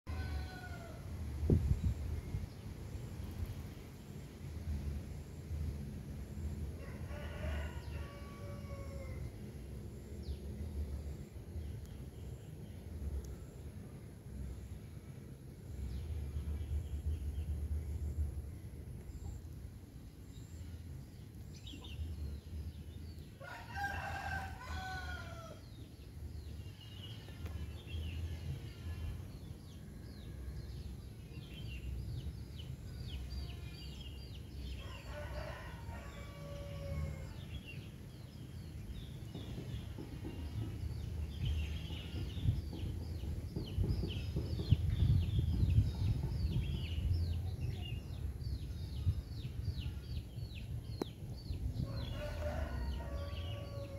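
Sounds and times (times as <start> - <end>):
rooster crowing: 0.1 - 1.0, 6.8 - 9.2, 23.4 - 25.6, 34.8 - 37.4, 51.8 - 53.9
steady low rumble: 1.0 - 7.1, 9.2 - 23.4, 40.5 - 53.9.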